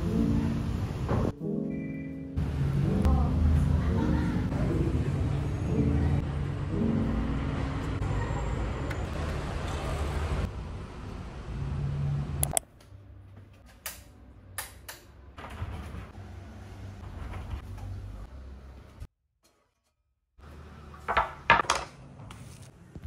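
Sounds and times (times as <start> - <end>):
road traffic rumble: 2.4 - 12.6.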